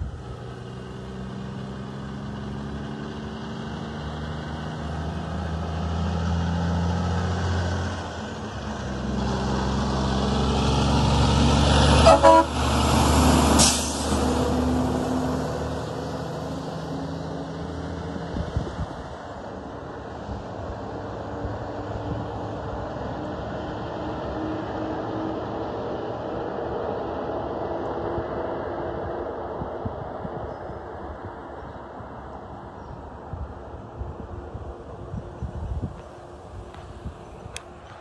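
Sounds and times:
diesel truck accelerating past: 0.0s - 38.0s
truck horn toot: 12.0s - 12.6s.

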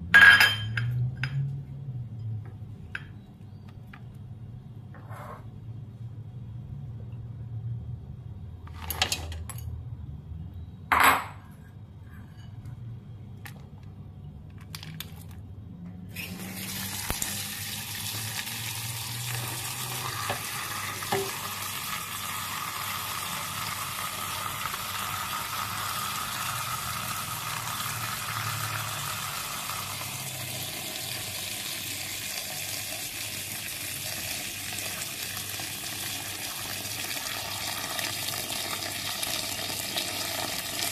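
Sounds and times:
clinks on a steel pot: 0.2s - 1.5s
tap water running into pot: 16.2s - 40.9s.

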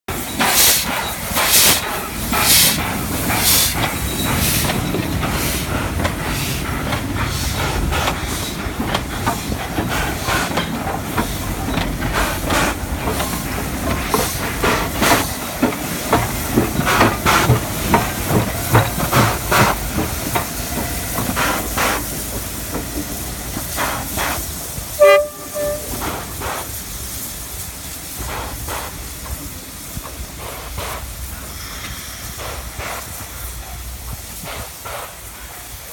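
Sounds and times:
steam hissing: 0.1s - 35.9s
steam locomotive exhaust chuffs: 0.1s - 35.9s
steam whistle blast: 24.9s - 26.2s.

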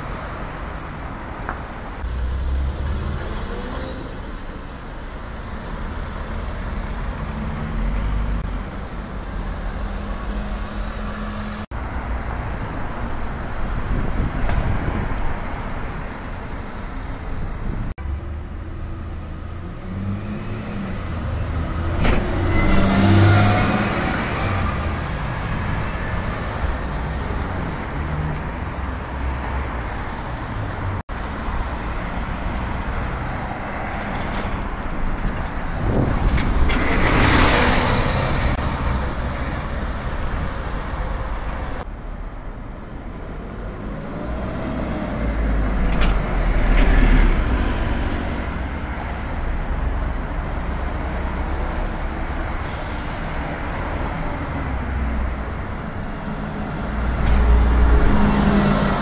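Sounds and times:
bus engines passing: 0.0s - 59.0s
street traffic: 0.0s - 59.0s.

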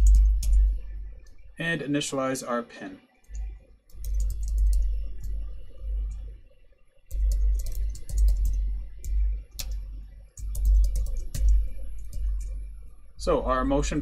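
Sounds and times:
keyboard keystroke clicks: 3.3s - 5.4s, 7.1s - 9.8s, 10.4s - 12.6s.

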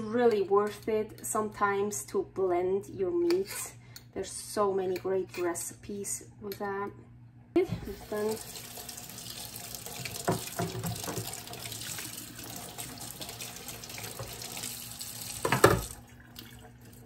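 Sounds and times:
tap water running into sink: 7.8s - 17.0s.

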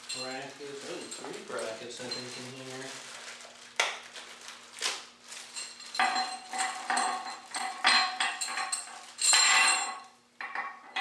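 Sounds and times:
steel brackets clinking and rattling: 5.6s - 11.0s.

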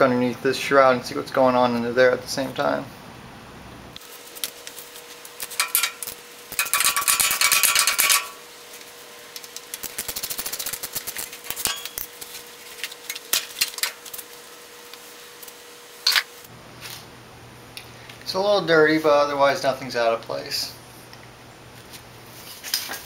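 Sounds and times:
hand tools undoing bolts: 5.4s - 8.4s, 11.1s - 14.0s
metallic clinking: 5.4s - 8.4s, 11.0s - 12.2s
rapid clicking: 9.7s - 11.3s.

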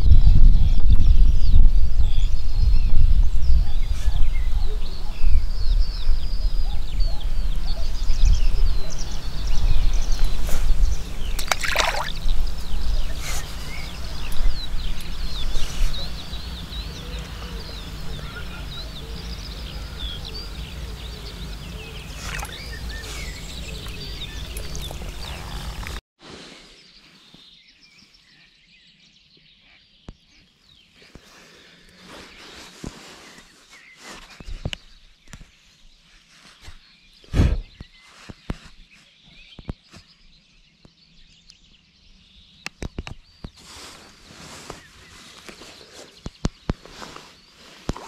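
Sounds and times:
songbirds chirping: 0.3s - 48.0s
water splashes: 11.4s - 12.4s, 22.1s - 22.7s.

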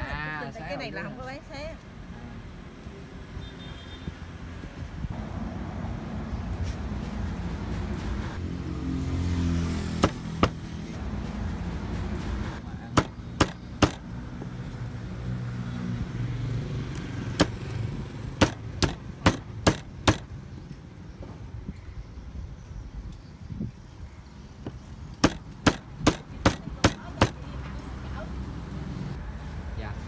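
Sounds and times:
cleaver chopping on wooden board: 9.9s - 10.7s, 12.9s - 14.1s, 17.3s - 17.6s, 18.4s - 20.3s, 25.2s - 27.4s.

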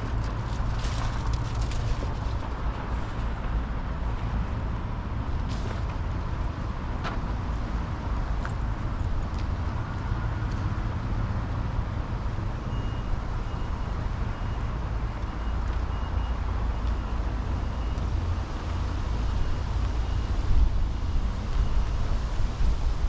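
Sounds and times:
faint high-pitched beeps: 12.7s - 18.2s.

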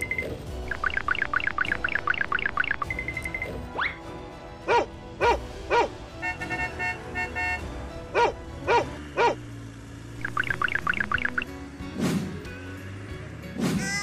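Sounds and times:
short beeping tones: 0.0s - 3.6s, 10.2s - 11.5s
small dog barking: 8.2s - 9.4s.

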